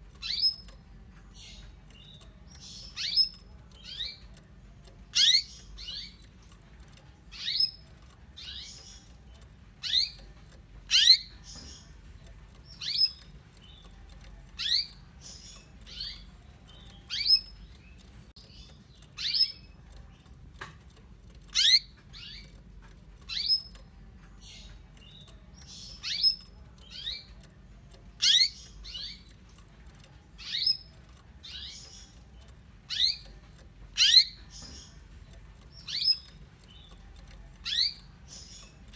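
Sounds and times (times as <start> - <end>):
canary chirping: 0.0 - 38.9.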